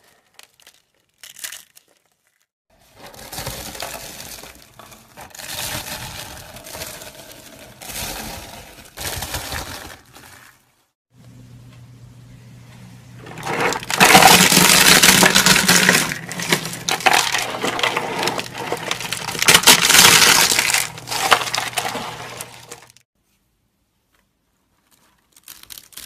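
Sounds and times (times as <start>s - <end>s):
hands crushing soap shavings: 0.0s - 2.4s, 13.6s - 23.0s.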